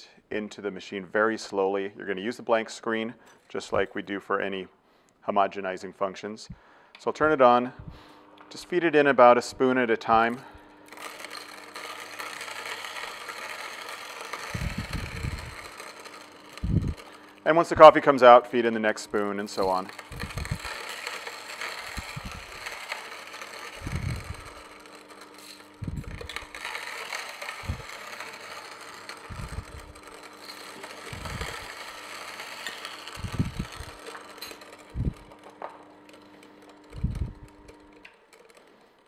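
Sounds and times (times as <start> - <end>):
juicer motor hum: 9.7 - 39.0
gritty crunching of coffee beans: 10.2 - 36.6.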